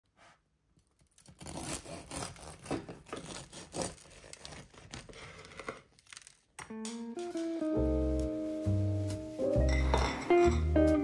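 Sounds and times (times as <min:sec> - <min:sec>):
knife cutting crusty bread: 0:01.2 - 0:05.2.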